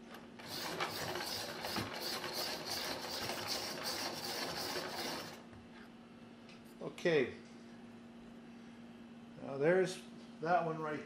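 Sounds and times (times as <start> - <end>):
pencil sharpener grinding rasp: 0.4 - 5.4.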